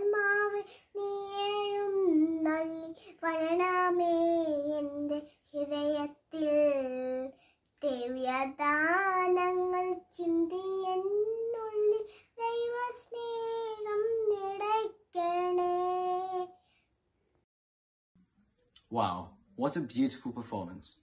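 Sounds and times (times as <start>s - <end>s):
child singing unaccompanied: 0.0s - 16.7s.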